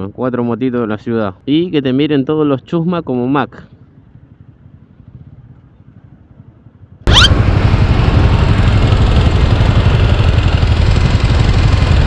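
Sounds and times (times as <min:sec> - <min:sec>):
motorcycle engine idling: 0:03.7 - 0:12.0
quick rising sweep: 0:07.1 - 0:07.4.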